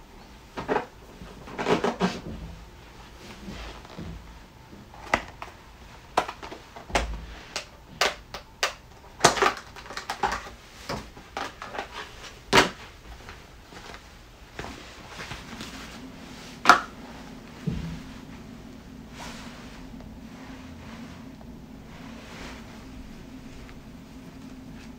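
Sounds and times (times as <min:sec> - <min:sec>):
plastic parts clicking and tapping: 0:05.0 - 0:12.0
plastic packaging rustling: 0:05.0 - 0:24.9.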